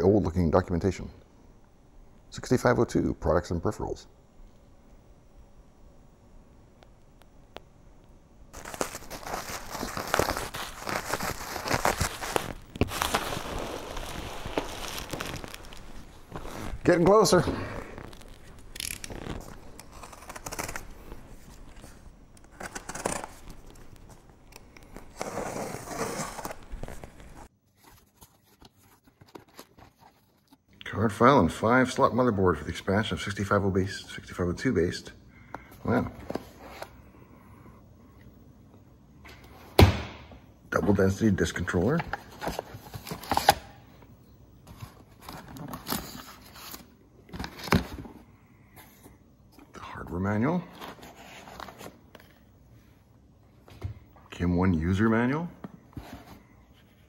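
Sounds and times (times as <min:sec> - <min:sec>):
paper rustling in a box: 0:08.6 - 0:17.0
tape tearing: 0:08.6 - 0:17.1, 0:17.8 - 0:27.4.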